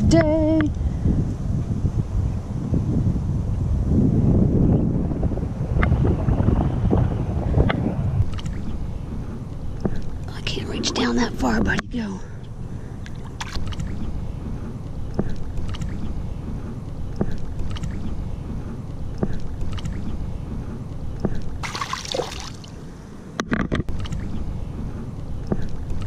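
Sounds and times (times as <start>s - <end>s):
wind rumble on microphone: 0.0s - 26.0s
faint water sounds: 21.3s - 23.3s.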